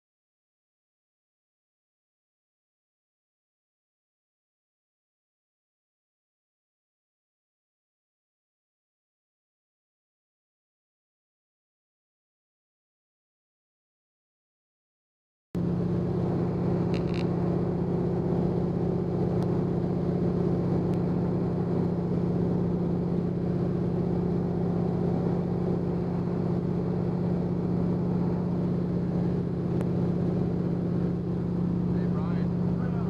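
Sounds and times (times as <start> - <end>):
plane engine and propeller droning: 15.6 - 33.0.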